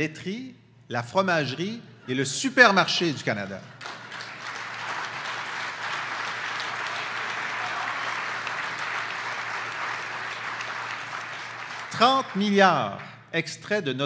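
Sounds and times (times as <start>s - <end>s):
audience applauding: 3.8s - 13.1s.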